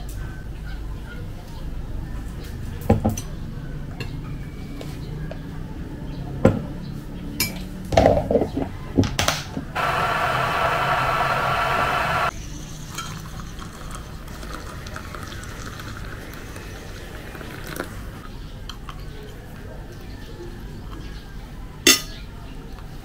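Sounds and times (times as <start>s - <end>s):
electric kettle heating water: 9.8s - 12.3s
hot water pouring into mug: 9.8s - 12.3s, 12.9s - 18.2s.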